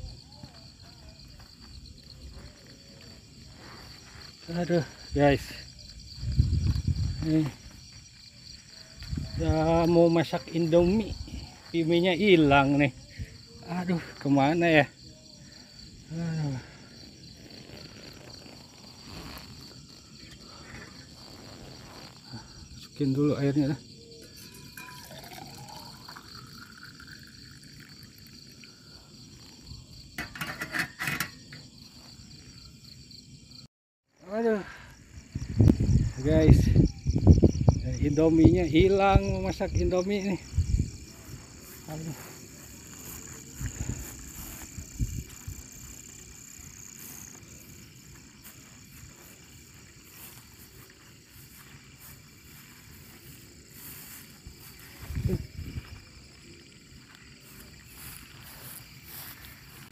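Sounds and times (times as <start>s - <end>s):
crickets chirping: 0.0s - 59.9s
night insects trilling: 0.0s - 59.9s
water pouring into pot: 24.3s - 28.7s.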